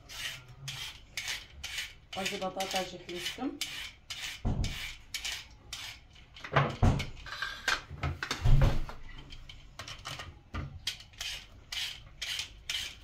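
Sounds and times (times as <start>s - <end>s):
vegetable peeler rasping: 0.0s - 6.4s, 10.8s - 13.0s.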